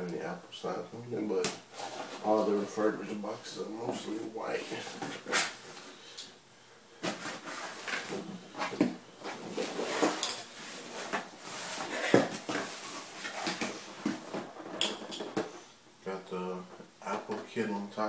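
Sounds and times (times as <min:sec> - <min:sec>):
cardboard box scraping and rustling: 0:07.0 - 0:14.5.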